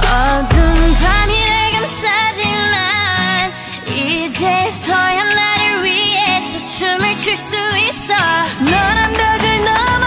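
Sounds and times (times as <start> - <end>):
deep bass: 0.0 - 1.8
person singing pop song: 0.0 - 10.0.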